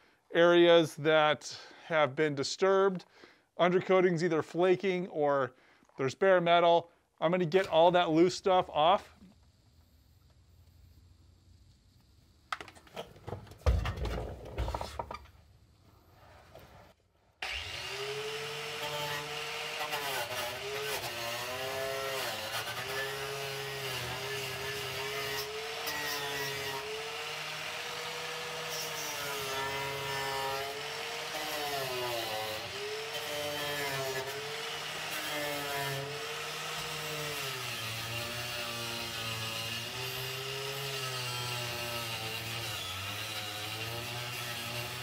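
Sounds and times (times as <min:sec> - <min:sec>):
power tool wire brush scrubbing metal: 0:17.4 - 0:45.0.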